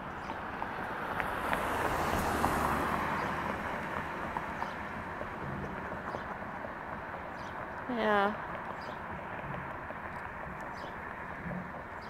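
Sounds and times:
car driving past: 0.0 - 7.8.

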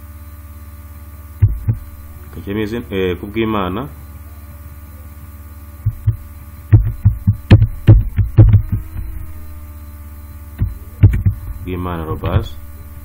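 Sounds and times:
steady electrical hum: 0.0 - 13.0
keyboard typing: 10.6 - 12.4.

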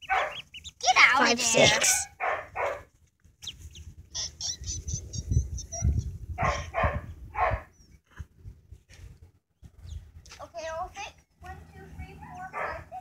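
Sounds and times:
ducklings peeping: 0.0 - 2.1, 3.4 - 6.1.

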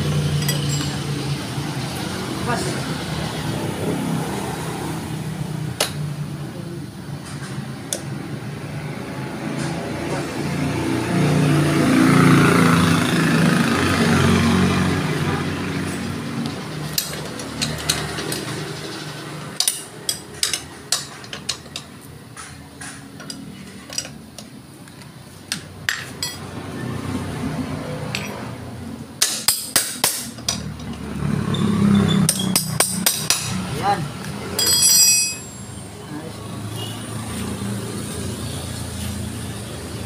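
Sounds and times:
metallic clinks from tools: 0.4 - 1.2, 34.5 - 35.9.

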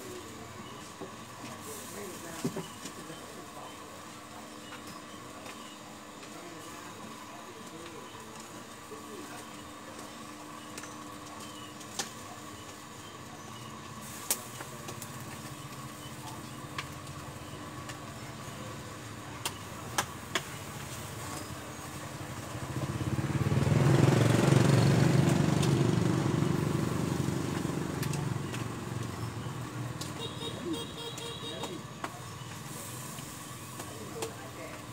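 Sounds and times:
vehicle engine passing by: 22.6 - 29.1.

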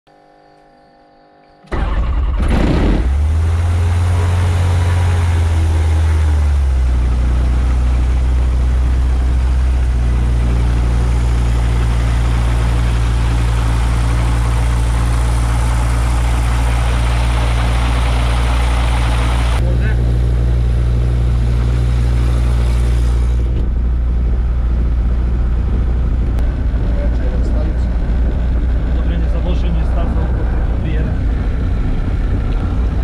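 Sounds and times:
aircraft engine droning: 1.7 - 33.0
sweeping whine: 3.1 - 33.0.

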